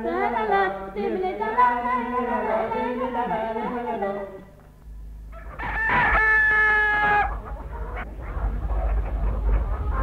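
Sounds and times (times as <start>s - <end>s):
chickens clucking: 5.3s - 10.0s
rooster crowing: 5.4s - 7.4s.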